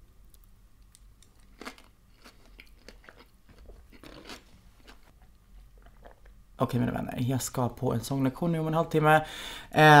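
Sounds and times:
person chewing: 0.3 - 6.3.

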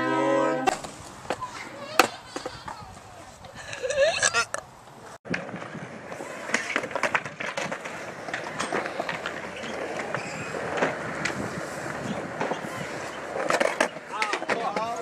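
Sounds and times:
sharp skateboard clacks: 0.6 - 2.8, 5.3 - 15.0
skateboard wheels rolling on concrete: 0.6 - 15.0.

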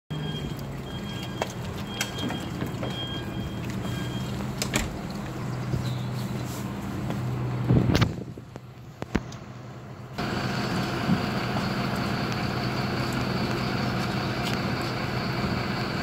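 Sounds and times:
warning alarm beeps: 0.1 - 4.4
truck engine running: 0.1 - 16.0.

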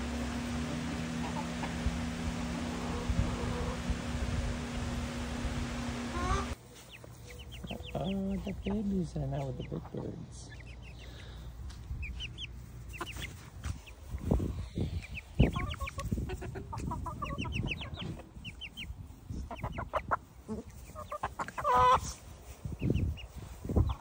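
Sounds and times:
chickens clucking: 0.0 - 24.0
chickens peeping: 0.0 - 24.0
chicken squawk: 2.6 - 4.0, 6.1 - 8.4, 12.0 - 13.9, 15.0 - 22.3.

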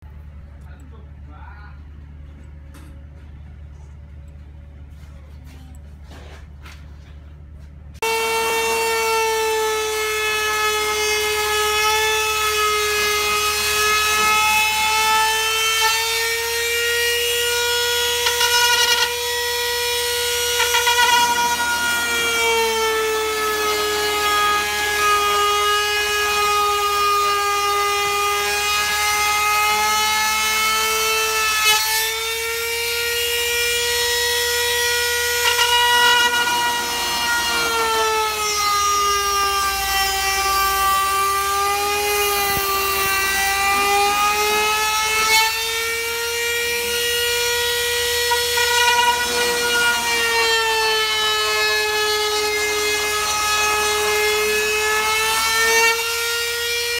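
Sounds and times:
trim router whining: 8.0 - 56.9
router bit rasping: 17.2 - 29.9, 30.7 - 56.0.

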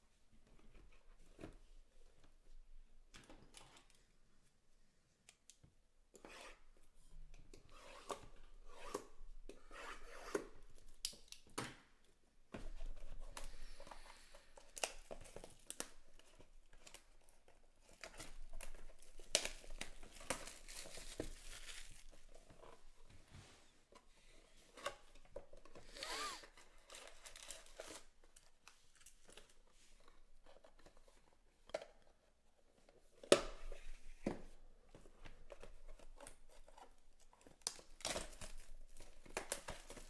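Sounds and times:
plastic shrink wrap tearing: 18.0 - 22.3.

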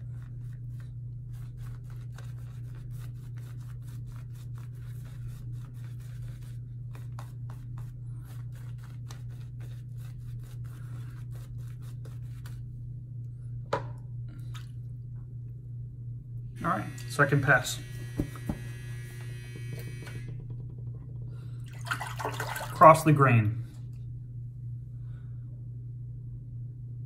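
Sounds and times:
shaving brush scratching on face: 0.0 - 12.7
steady low hum: 0.0 - 27.0.

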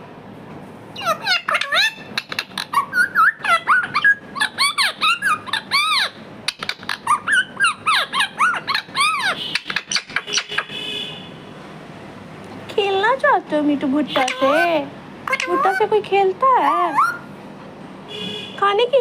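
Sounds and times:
parrot chirping: 0.9 - 11.0, 14.1 - 16.0, 16.6 - 17.3
parrot clicks: 15.3 - 15.6.

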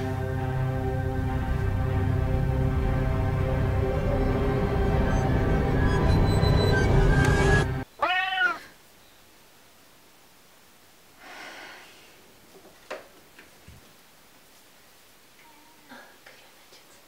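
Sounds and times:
scary film music: 0.0 - 7.8
cat meowing: 8.0 - 8.8
faint breathy rush: 11.1 - 12.3.

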